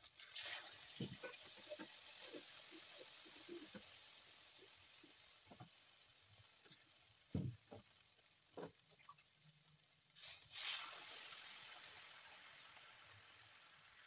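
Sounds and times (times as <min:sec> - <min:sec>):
water hissing into steam: 0:00.0 - 0:07.8, 0:10.1 - 0:14.0
vegetables sizzling in frying pan: 0:00.0 - 0:14.0
soft knocks: 0:07.4 - 0:07.9.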